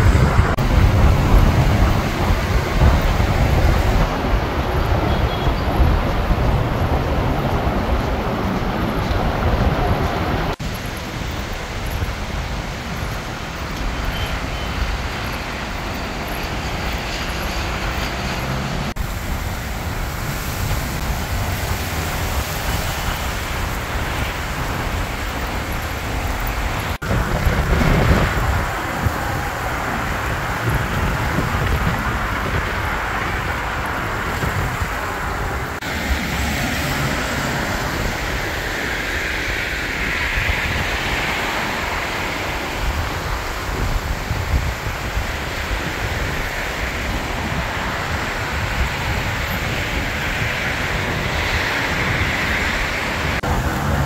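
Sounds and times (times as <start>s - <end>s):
road traffic rushing: 0.0s - 54.0s
wind buffeting microphone: 0.0s - 54.0s.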